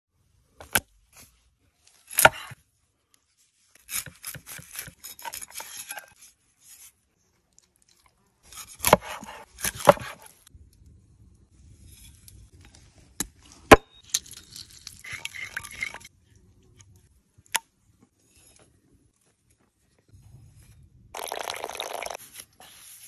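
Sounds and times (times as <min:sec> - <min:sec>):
knife chopping into board: 0:08.8 - 0:10.3.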